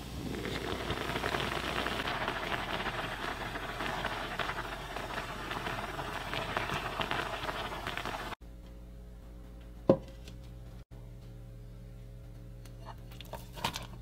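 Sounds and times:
food sizzling in oil: 0.0 - 8.4.

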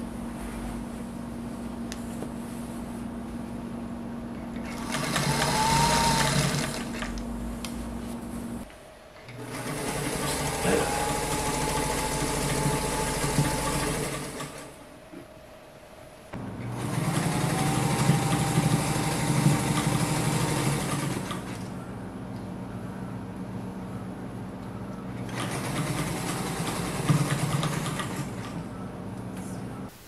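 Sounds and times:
sewing machine stitching: 4.6 - 7.1, 9.3 - 14.8, 16.7 - 21.6, 25.3 - 28.6.

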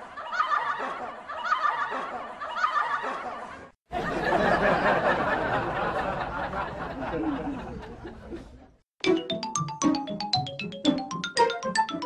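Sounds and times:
cartoon snickering laughter: 0.0 - 3.7.

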